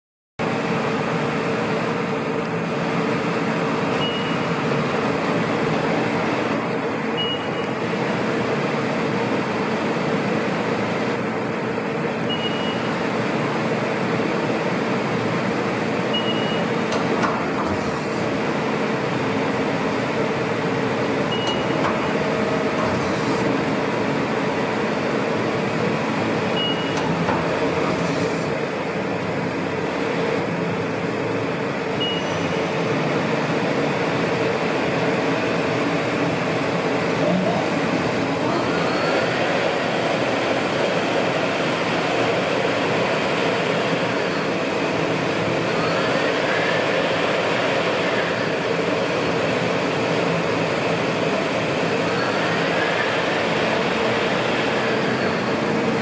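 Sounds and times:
machinery hum: 0.4 - 56.0
short high beeps: 4.0 - 4.6, 7.2 - 7.8, 12.3 - 13.0, 16.1 - 16.8, 21.3 - 21.9, 26.6 - 27.0, 32.0 - 32.6.

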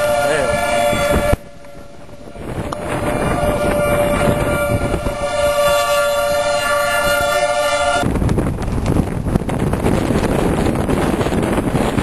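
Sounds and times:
multi-tone warning siren: 0.0 - 8.0
wind buffeting microphone: 0.0 - 12.0.

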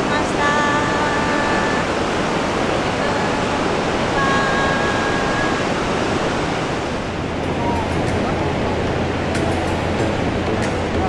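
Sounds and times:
sea surf breaking: 0.0 - 11.0.

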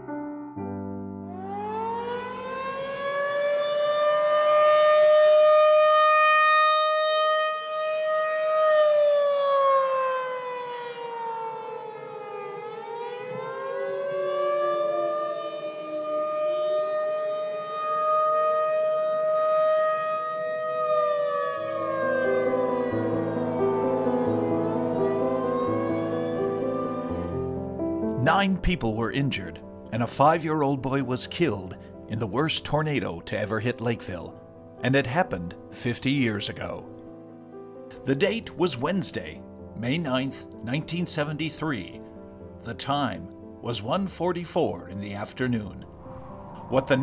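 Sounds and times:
piano music: 0.0 - 47.0
warning siren wailing: 1.2 - 28.1, 45.8 - 47.0.

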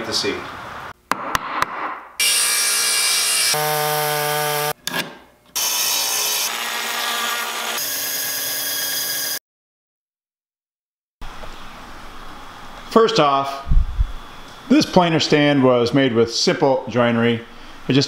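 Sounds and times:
power tool cutting: 2.2 - 4.8, 5.6 - 9.4.

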